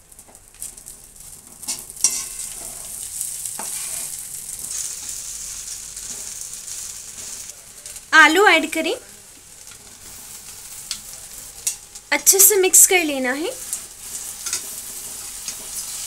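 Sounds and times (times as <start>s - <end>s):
food sizzling in hot oil: 0.0s - 16.0s
metal spoon stirring and scraping: 1.6s - 6.3s, 14.0s - 16.0s.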